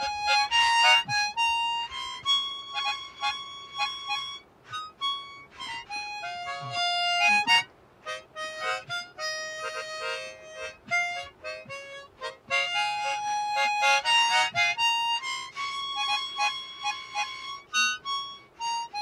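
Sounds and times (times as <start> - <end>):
harmonica playing slow melody: 0.0 - 19.0.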